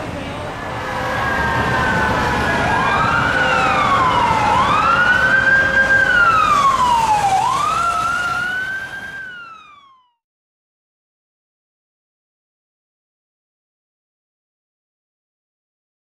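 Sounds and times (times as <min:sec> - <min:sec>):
emergency siren wailing: 0:00.5 - 0:10.2
steady falling siren tone: 0:00.6 - 0:10.2.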